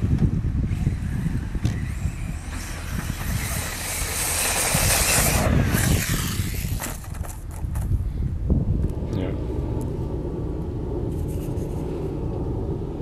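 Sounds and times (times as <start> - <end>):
steady low rumble: 0.0 - 13.0
rc car motor and sand spray hiss: 0.7 - 7.6.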